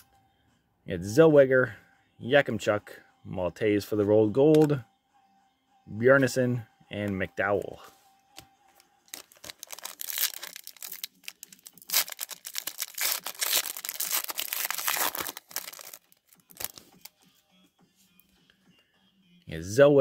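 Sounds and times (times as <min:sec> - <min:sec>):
plastic wrapper crinkling: 0:09.1 - 0:17.2.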